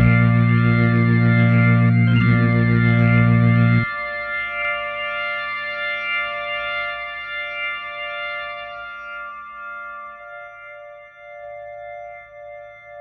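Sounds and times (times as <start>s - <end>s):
organ holding sustained chord: 0.0s - 7.6s.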